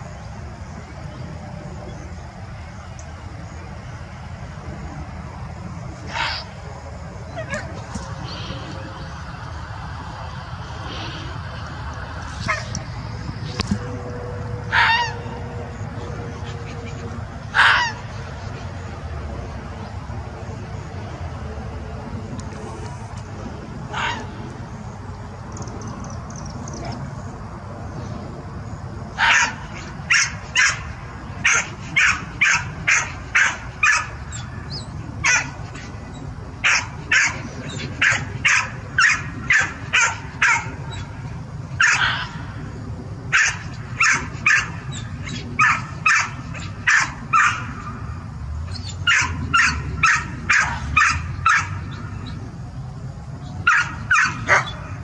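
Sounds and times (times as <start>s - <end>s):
steady low rumble: 0.0s - 55.0s
sharp high-pitched barks: 29.2s - 34.1s, 36.6s - 37.4s, 38.0s - 40.8s, 41.8s - 42.4s, 43.3s - 47.7s, 49.0s - 51.8s, 53.7s - 54.8s.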